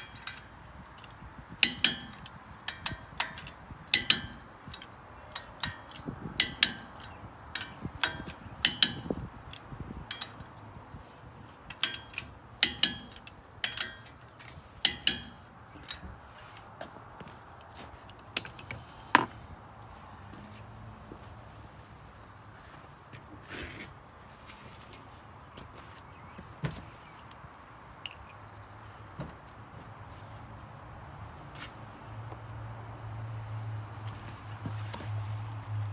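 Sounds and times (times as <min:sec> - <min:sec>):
ratchet wrench clicking: 0:00.0 - 0:10.6, 0:11.7 - 0:16.1.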